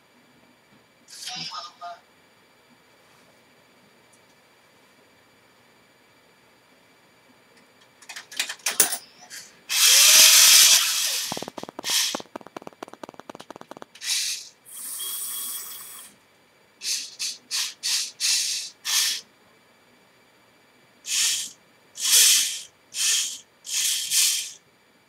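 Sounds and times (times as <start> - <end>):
toy motors whirring: 9.3 - 16.1, 16.8 - 19.3, 21.1 - 24.6
rapid clicking: 11.0 - 14.5.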